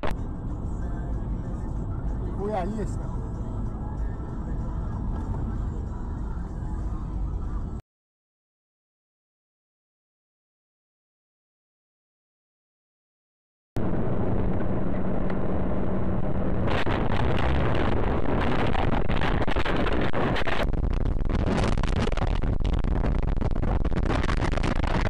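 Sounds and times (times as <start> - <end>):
vehicle engine and road rumble: 0.0 - 7.8, 13.8 - 25.0
rough crackle: 13.8 - 25.0.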